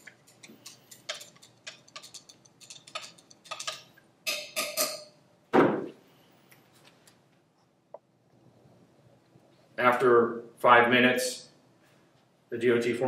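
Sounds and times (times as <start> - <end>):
metal spatula clinking on glass: 0.1 - 5.2.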